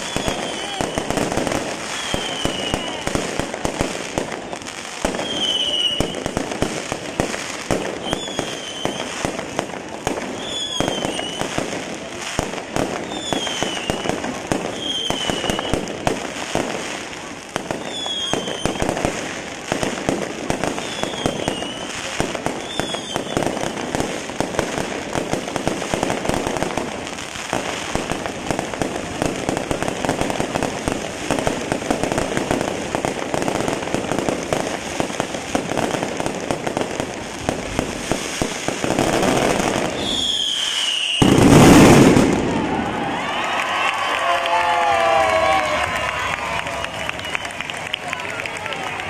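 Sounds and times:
falling firework whistles: 0.0s - 3.5s, 4.3s - 6.4s, 7.8s - 9.4s, 10.2s - 11.7s, 12.8s - 15.9s, 17.7s - 19.2s, 19.8s - 24.1s, 37.5s - 43.9s
fireworks crackling bangs: 0.0s - 49.0s.

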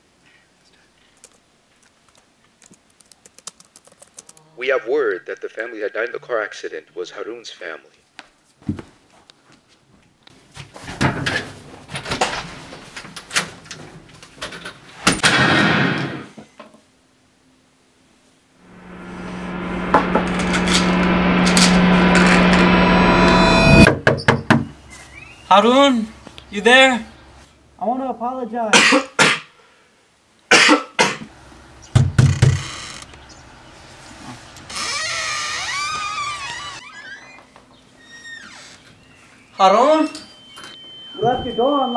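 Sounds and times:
rushing noise: 18.6s - 23.9s
wavering hiss: 18.6s - 23.9s
man coughing: 28.7s - 29.5s, 30.5s - 31.3s.

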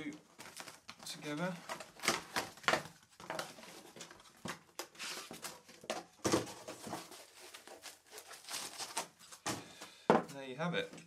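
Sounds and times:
cardboard box rustling and scraping: 6.4s - 9.0s.

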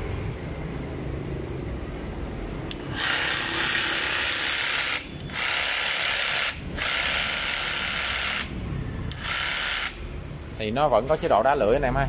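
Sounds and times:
cordless jigsaw running: 2.9s - 8.5s, 9.1s - 10.0s.

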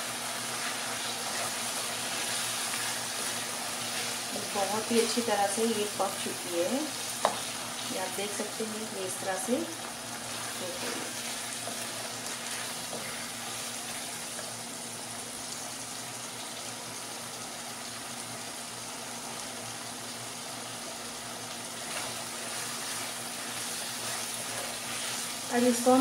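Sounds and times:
meat sizzling in a wok: 0.0s - 26.0s
wooden spatula stirring: 0.5s - 5.2s, 10.1s - 14.1s, 21.8s - 25.9s.

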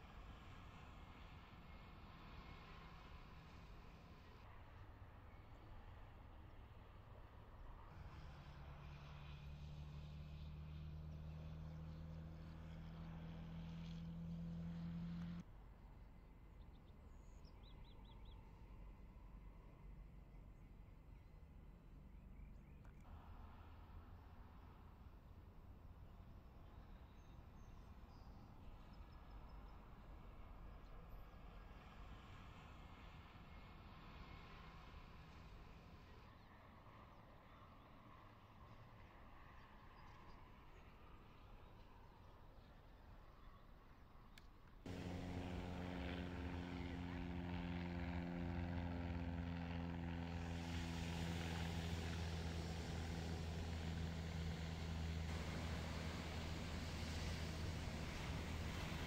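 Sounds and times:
faint low outdoor rumble: 0.0s - 59.0s
low engine drone: 44.9s - 59.0s
faint hiss: 50.6s - 59.0s.

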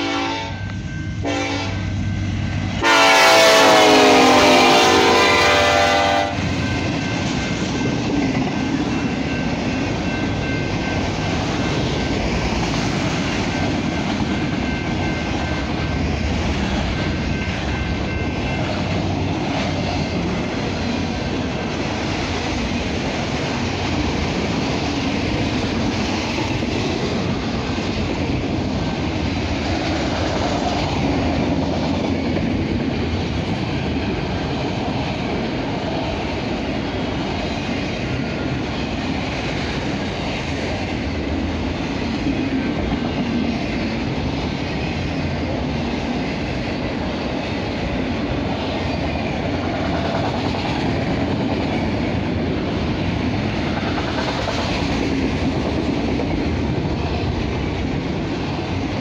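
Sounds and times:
locomotive horn blasts: 0.0s - 1.8s, 2.8s - 6.5s.

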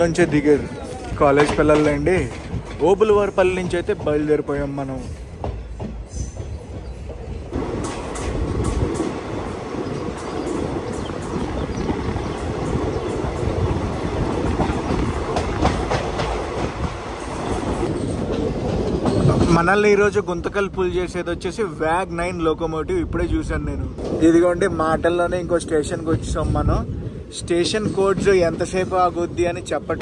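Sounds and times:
train wheels clicking over rail joints: 1.2s - 21.2s, 27.5s - 29.2s.

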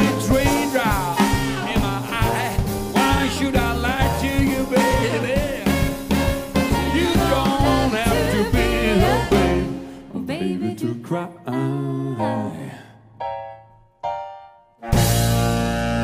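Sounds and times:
live band playing: 0.0s - 9.8s, 14.8s - 16.0s.

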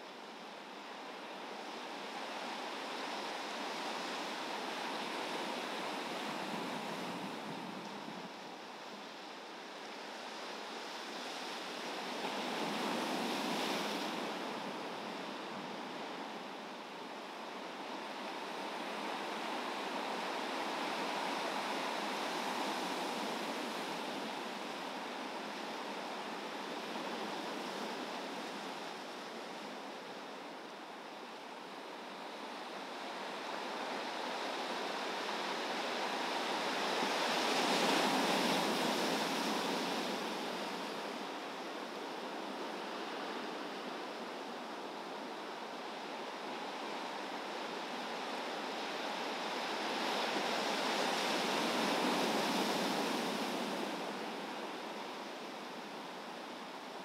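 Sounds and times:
wind: 0.0s - 57.0s
ocean waves breaking on shore: 0.2s - 57.0s.

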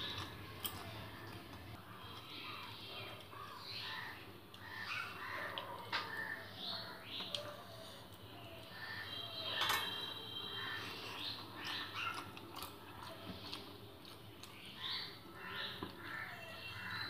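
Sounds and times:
crows cawing: 2.4s - 7.8s, 8.7s - 9.6s, 10.3s - 12.1s, 14.8s - 17.0s
ringing clink on plate: 9.6s - 10.1s.

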